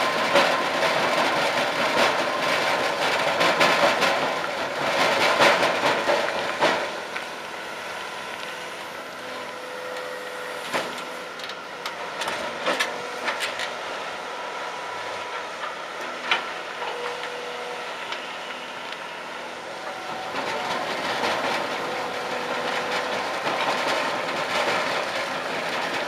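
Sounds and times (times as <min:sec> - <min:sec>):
diesel engine running: 0:00.0 - 0:26.0
crusher bucket crushing rock: 0:19.8 - 0:26.0.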